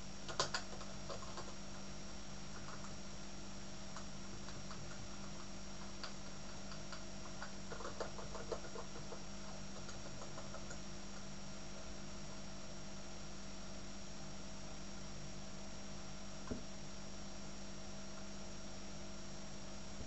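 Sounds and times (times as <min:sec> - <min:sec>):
steady hum: 0:00.0 - 0:20.0
keyboard keys clicking: 0:00.3 - 0:01.6, 0:04.0 - 0:10.8.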